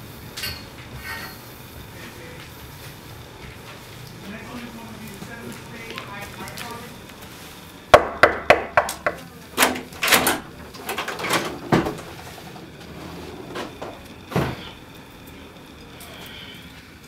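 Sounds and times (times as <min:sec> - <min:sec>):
knuckles knocking on door: 0:07.9 - 0:09.2
door opening thumps and clatter: 0:09.6 - 0:12.2.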